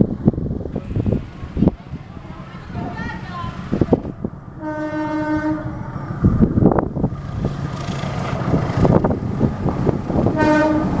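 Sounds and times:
locomotive engine rumble: 0:00.0 - 0:11.0
locomotive horn blast: 0:04.6 - 0:05.9, 0:10.3 - 0:11.0.

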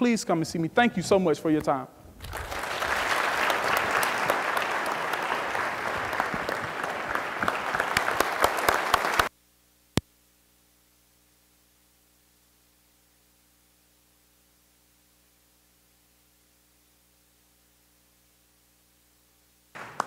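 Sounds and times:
audience applauding: 0:02.2 - 0:09.3, 0:19.8 - 0:20.0.

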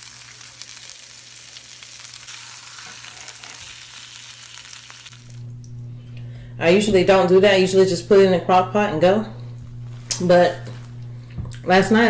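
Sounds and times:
meat sizzling in a pan: 0:00.0 - 0:05.4
low steady hum: 0:05.1 - 0:12.0.

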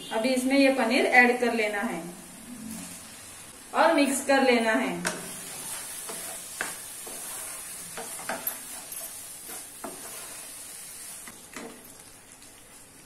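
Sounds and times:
food sizzling in a pan: 0:02.3 - 0:13.0
spatula strokes against pan: 0:05.2 - 0:11.3.

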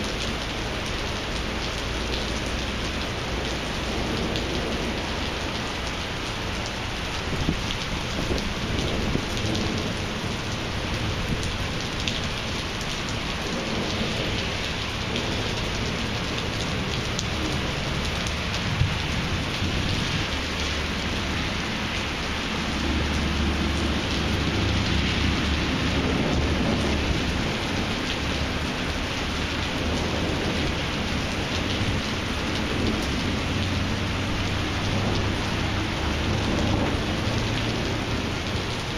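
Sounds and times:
heavy rain pouring on pavement: 0:00.0 - 0:38.9
raindrops ticking: 0:00.0 - 0:38.9
thunder rumbling: 0:06.6 - 0:38.9.

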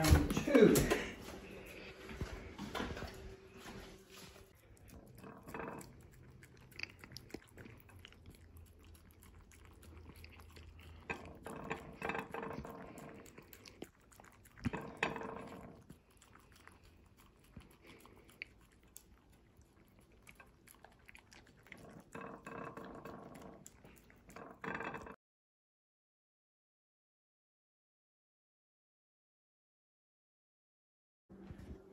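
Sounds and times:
dog licking and chewing: 0:00.1 - 0:25.1.

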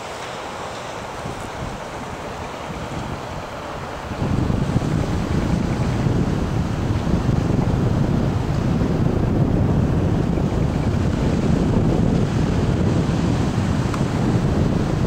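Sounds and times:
surf breaking on rocks: 0:00.0 - 0:09.1
wind buffeting microphone: 0:00.0 - 0:15.0.

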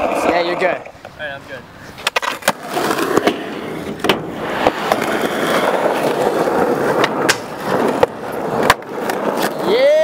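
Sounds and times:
skateboard trucks grinding: 0:00.0 - 0:10.0
skateboard wheels rolling on asphalt: 0:00.0 - 0:10.0
skateboard landing smack: 0:02.0 - 0:05.1, 0:07.0 - 0:09.2
skateboard clacks: 0:02.0 - 0:10.0.

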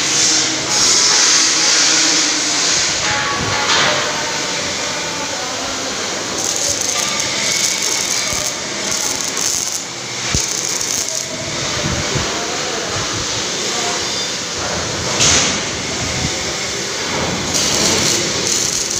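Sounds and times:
mechanical workshop noise: 0:00.0 - 0:18.9.

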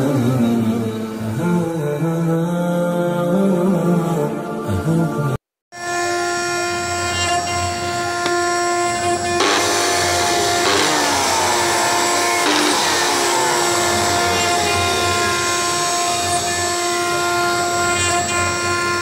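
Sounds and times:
electric drill motor whining: 0:07.2 - 0:19.0.

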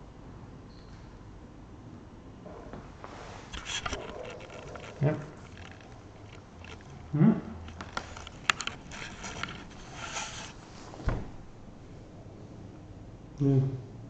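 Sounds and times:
handling noise: 0:02.8 - 0:11.6.

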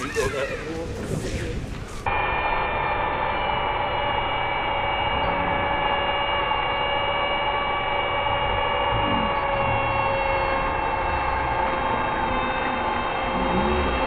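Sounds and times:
mechanical drone with steady tones: 0:02.0 - 0:14.0.

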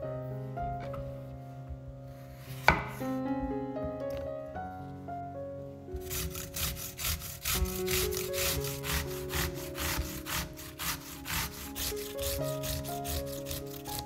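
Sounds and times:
zucchini rasping on grater: 0:06.0 - 0:14.0.

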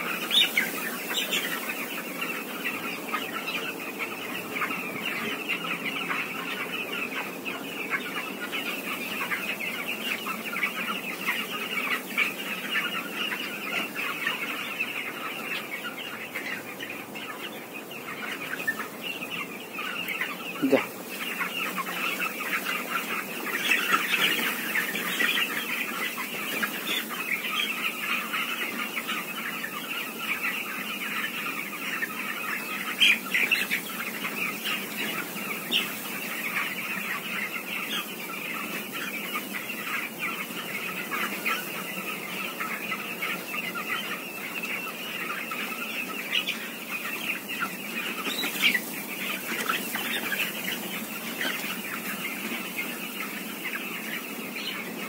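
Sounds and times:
chicks peeping in chorus: 0:00.0 - 0:55.0.

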